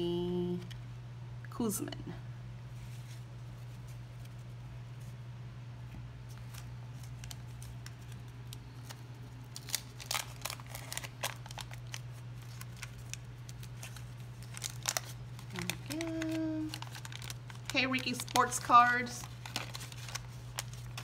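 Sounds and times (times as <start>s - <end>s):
wrapper crinkling and tearing: 6.3s - 21.0s.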